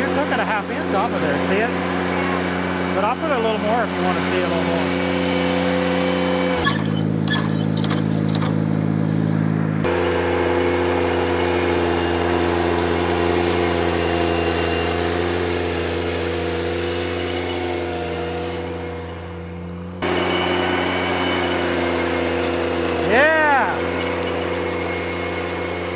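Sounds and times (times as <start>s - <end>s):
tractor engine running: 0.0s - 25.9s
sharp rattling clicks: 6.6s - 9.0s.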